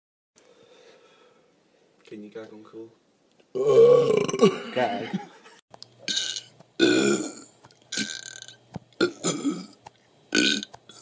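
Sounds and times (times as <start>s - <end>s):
man retching: 3.5s - 5.0s, 6.1s - 11.0s.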